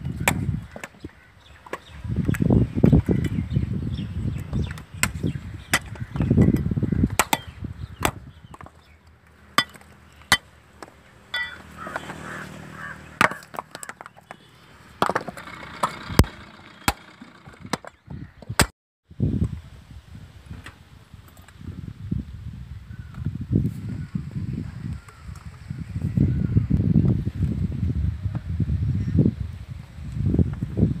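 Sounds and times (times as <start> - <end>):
low rumbling: 9.4 - 20.6
coconuts cracking: 13.1 - 17.9.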